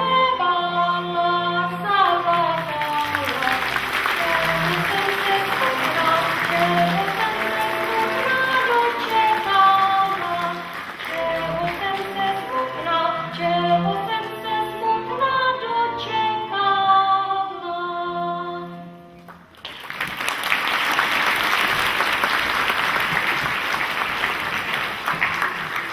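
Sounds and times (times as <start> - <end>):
audience applauding: 2.1 - 12.8, 19.3 - 25.9.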